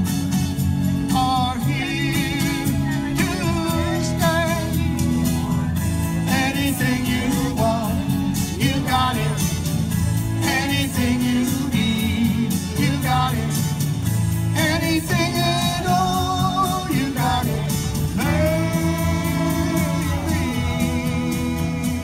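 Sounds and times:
backing track: 0:00.0 - 0:22.0
electric guitar: 0:00.0 - 0:22.0
person singing: 0:01.0 - 0:13.9, 0:14.5 - 0:22.0.

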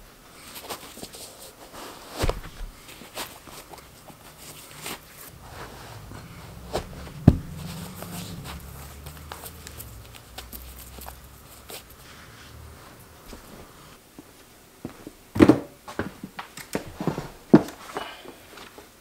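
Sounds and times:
shoelaces rustling: 0:00.5 - 0:14.0
low steady hum: 0:02.7 - 0:14.0.

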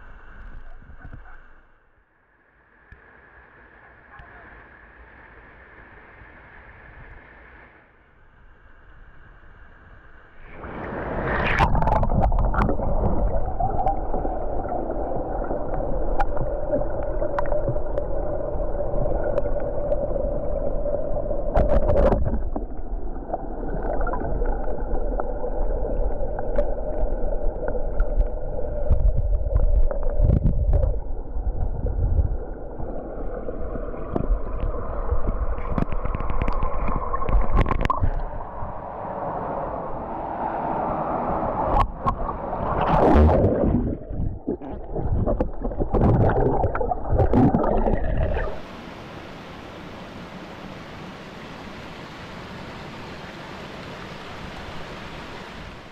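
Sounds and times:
water sloshing and gurgling: 0:10.4 - 0:39.6, 0:40.4 - 0:49.1.

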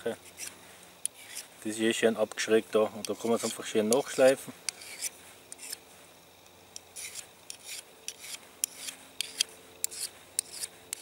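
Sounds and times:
knife blade scraping on sharpener: 0:00.2 - 0:01.5, 0:03.0 - 0:05.8, 0:06.8 - 0:11.0.

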